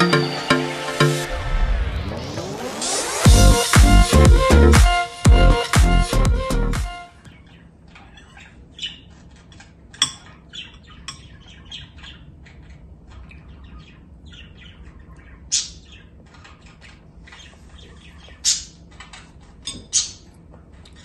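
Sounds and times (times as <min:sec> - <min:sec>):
pet bird chirping and squawking: 0:07.3 - 0:21.0.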